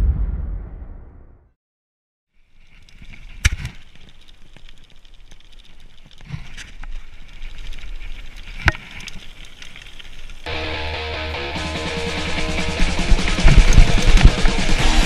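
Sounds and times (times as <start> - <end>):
wind rush: 0.0 - 1.3
bike rolling on gravel: 2.4 - 15.0.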